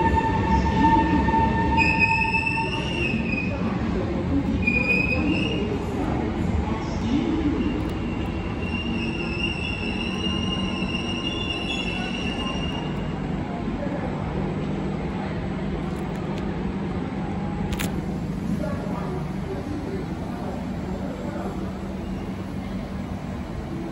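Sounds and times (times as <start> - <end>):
train braking rumble: 0.0 - 4.0, 7.4 - 13.5
low hum of standing train: 0.0 - 23.9.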